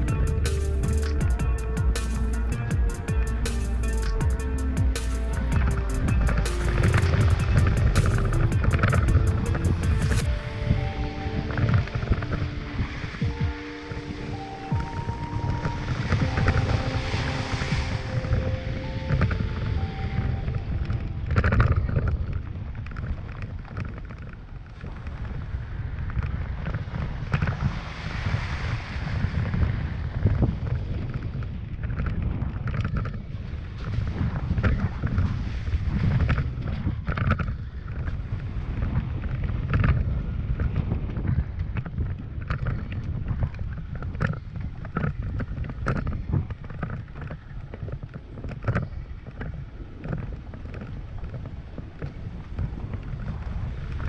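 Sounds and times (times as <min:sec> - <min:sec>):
knocks and rattles over bumps: 0:00.0 - 0:10.4
gravel clicks and body knocks: 0:00.0 - 0:10.6, 0:14.7 - 0:54.0
truck engine low rumble: 0:00.0 - 0:21.2
truck engine and tyres rumbling: 0:00.0 - 0:54.0
wind buffeting microphone: 0:00.0 - 0:54.0.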